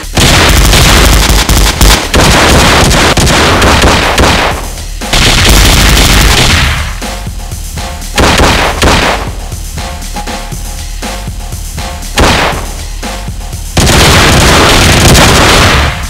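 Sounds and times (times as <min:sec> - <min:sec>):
automatic gunfire: 0:00.0 - 0:06.9, 0:08.2 - 0:09.3, 0:12.2 - 0:12.7, 0:13.8 - 0:16.0.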